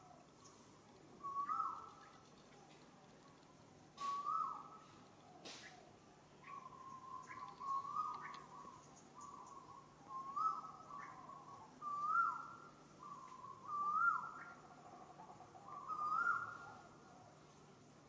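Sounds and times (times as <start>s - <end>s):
bird whistled call: 1.2s - 2.1s, 4.0s - 4.8s, 6.4s - 14.6s, 15.6s - 16.8s.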